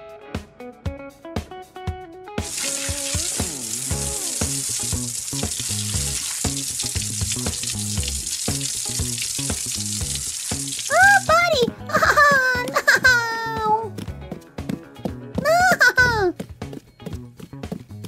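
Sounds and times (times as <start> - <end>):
light background music: 0.0 - 18.0
water running from tap: 2.4 - 12.4.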